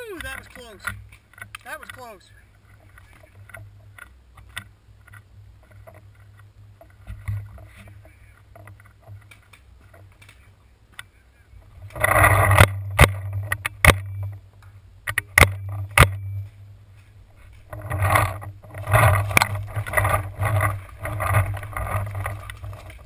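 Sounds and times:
low steady rumble: 0.1s - 23.0s
loud scraping rustle: 11.6s - 14.4s, 15.1s - 23.0s.

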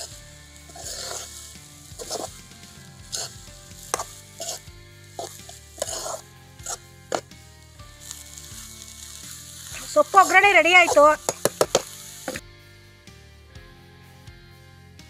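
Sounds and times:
spoon scraping a metal pan: 0.0s - 7.3s, 8.0s - 12.4s.

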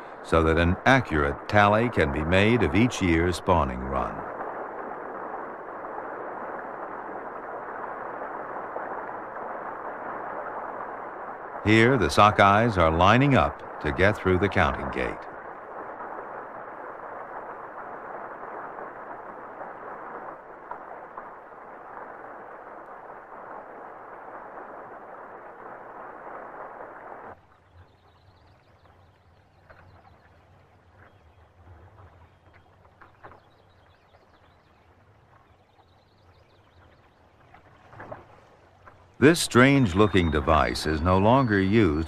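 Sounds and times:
low hum: 0.0s - 42.0s.

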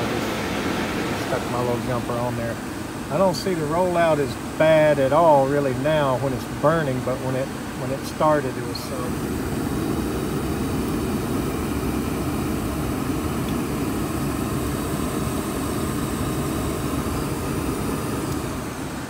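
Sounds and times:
furnace rushing noise: 0.0s - 3.9s.

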